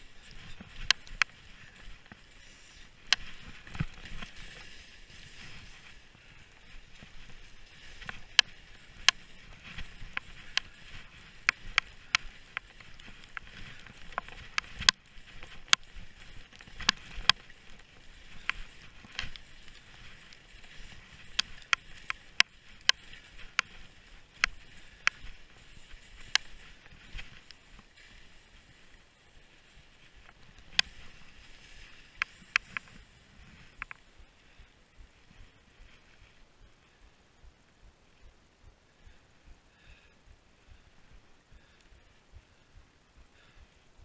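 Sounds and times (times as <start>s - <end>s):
ski clicks and knocks: 0.0s - 34.6s
skis hissing on snow: 0.0s - 34.6s.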